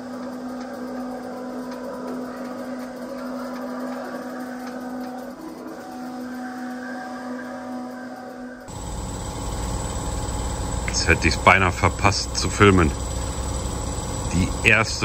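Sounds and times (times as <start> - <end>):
plotter motor hum: 8.7 - 15.0.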